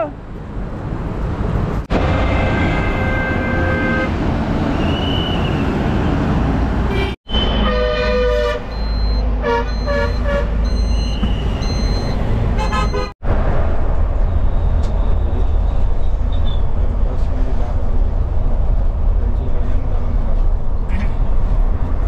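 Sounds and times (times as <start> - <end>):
highway traffic rumbling: 0.0 - 22.0
vehicle horns: 2.1 - 5.5, 6.9 - 11.9, 12.5 - 13.2.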